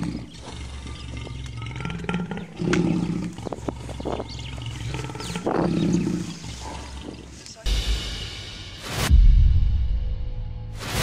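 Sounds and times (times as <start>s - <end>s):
lion growling: 0.0s - 7.6s.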